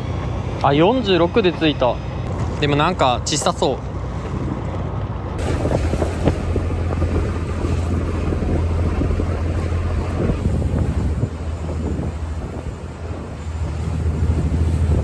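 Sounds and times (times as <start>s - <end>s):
boat engine humming: 0.0s - 15.0s
sea noise: 0.0s - 15.0s
wind buffeting microphone: 4.3s - 15.0s.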